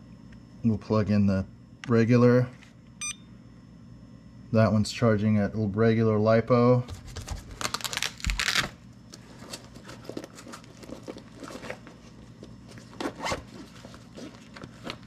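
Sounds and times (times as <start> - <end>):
plastic handling rustles and clicks: 9.1 - 15.0.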